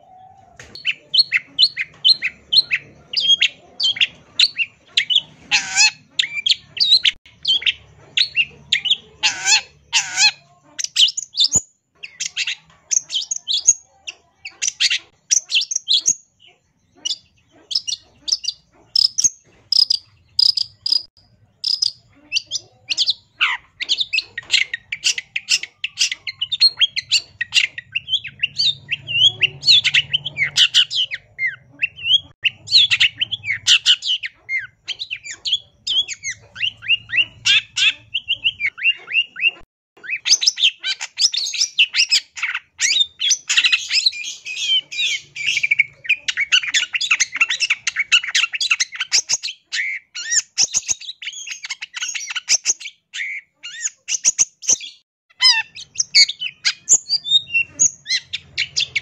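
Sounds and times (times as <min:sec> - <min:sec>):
bird singing varied chirps: 0:00.0 - 0:59.0.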